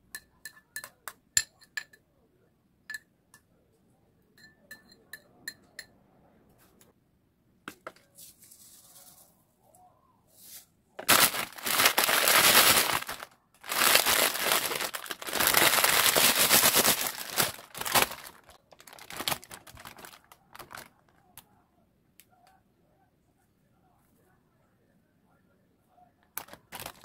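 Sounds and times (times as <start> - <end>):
dry seaweed crinkling and crackling: 11.0 - 21.2, 26.4 - 27.0.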